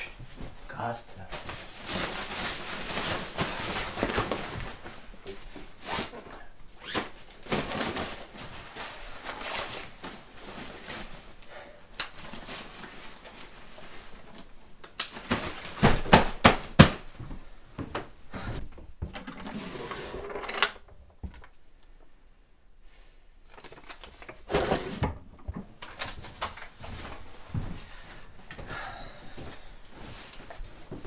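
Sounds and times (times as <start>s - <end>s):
fabric rustling: 0.0s - 18.6s, 25.7s - 28.6s, 29.2s - 31.0s.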